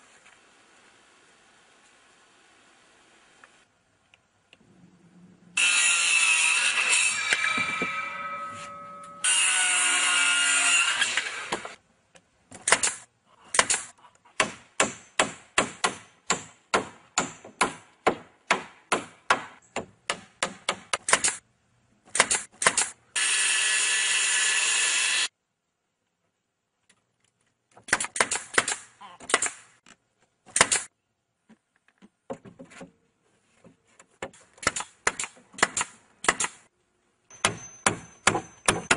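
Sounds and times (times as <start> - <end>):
circular saw cutting wood: 5.6 - 11.8, 23.2 - 25.3
hammer driving nails: 37.3 - 38.9.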